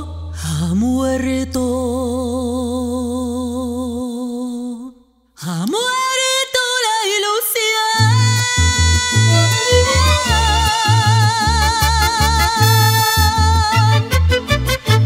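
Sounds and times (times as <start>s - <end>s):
woman singing with vibrato: 0.0s - 15.0s
sustained low bass tone: 8.1s - 15.0s.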